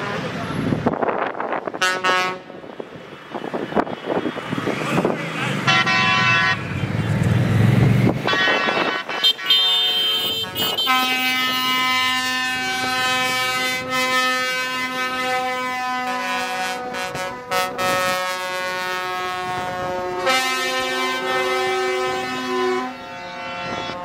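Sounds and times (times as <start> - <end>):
truck air horn chord: 8.3 - 24.0.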